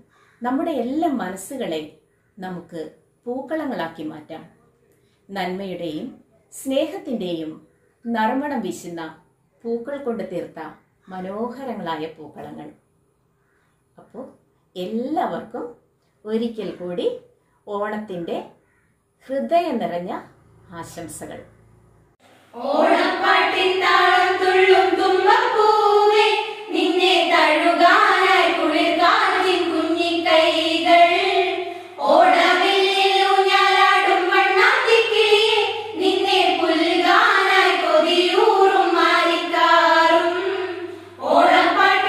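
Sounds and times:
girls and women singing together: 22.3s - 42.0s.

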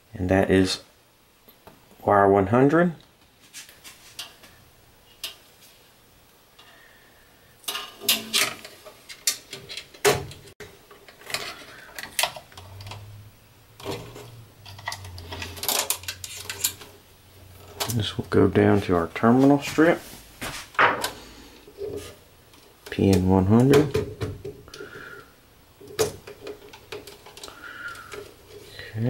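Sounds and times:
wire pulled through plastic duct: 13.8s - 18.3s
small clicks taps and rustles: 25.8s - 28.7s.

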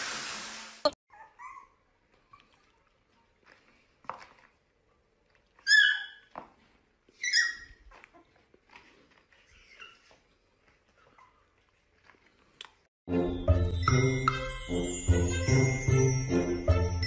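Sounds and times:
puppy yipping: 1.1s - 2.6s, 5.6s - 6.4s, 7.1s - 8.4s, 9.4s - 10.3s.

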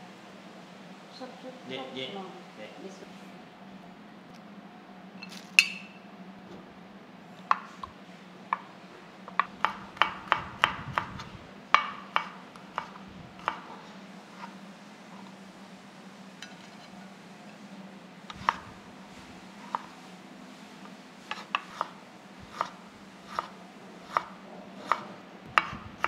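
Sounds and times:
low hum: 2.4s - 21.3s
knife chopping on wooden board: 9.3s - 11.2s, 11.8s - 13.8s, 21.3s - 26.0s.

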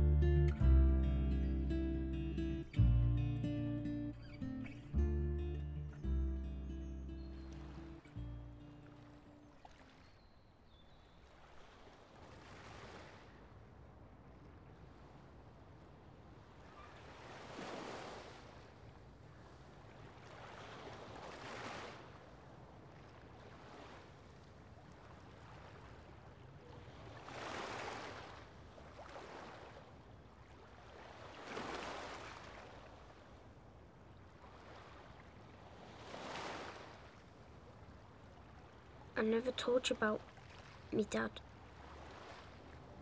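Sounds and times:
small waves on pebble shore: 11.2s - 13.4s, 16.7s - 18.8s, 19.8s - 22.4s, 27.0s - 33.5s, 34.4s - 37.6s, 39.3s - 43.0s.

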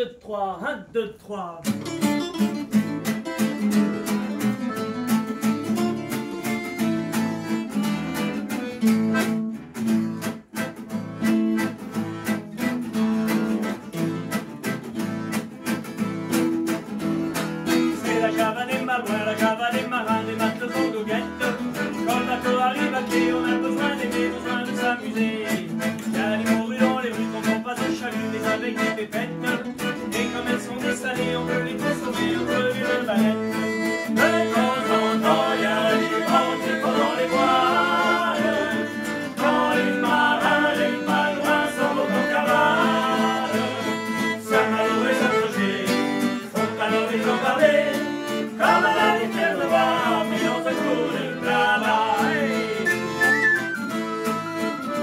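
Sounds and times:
acoustic guitars strumming: 1.6s - 55.0s
button accordion playing: 1.9s - 55.0s
men singing: 17.9s - 53.2s.

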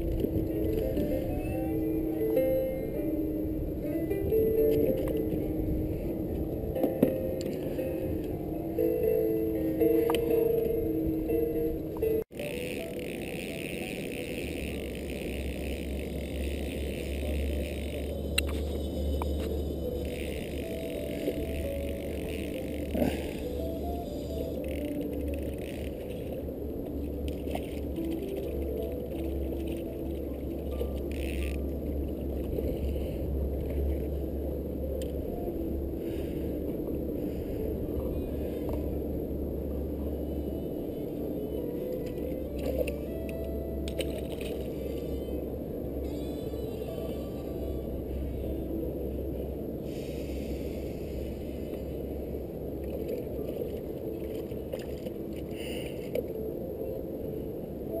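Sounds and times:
boat motor humming: 0.0s - 58.0s
muffled low rumble of kayak: 0.0s - 58.0s
fishing rod and line clicks: 12.3s - 34.2s, 41.0s - 45.3s.

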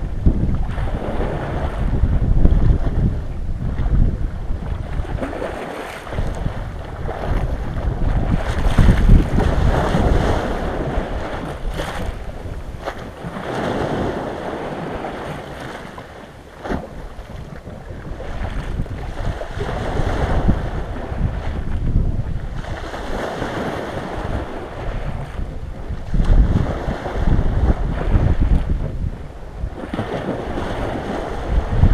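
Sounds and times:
wind rumbling on microphone: 0.0s - 31.9s
small waves washing on icy shore: 3.9s - 31.9s.

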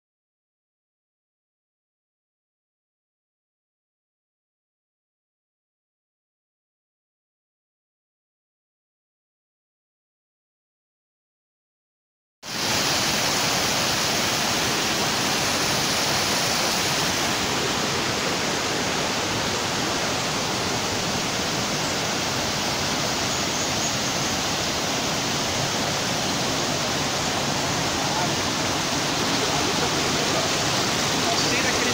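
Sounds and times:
stream rushing over rocks: 12.5s - 31.9s.

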